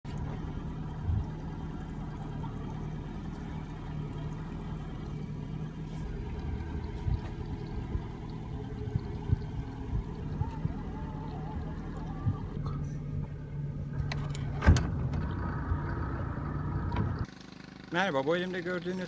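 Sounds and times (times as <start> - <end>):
boat engine idling: 0.0 - 19.0.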